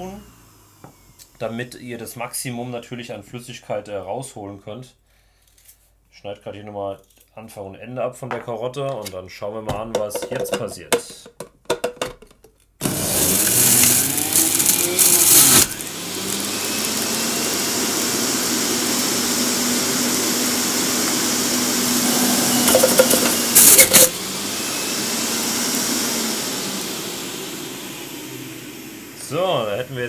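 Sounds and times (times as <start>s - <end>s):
juicer motor hum: 0.0s - 1.3s, 12.8s - 30.0s
juicer grinding carrots: 0.0s - 1.4s, 12.8s - 30.0s.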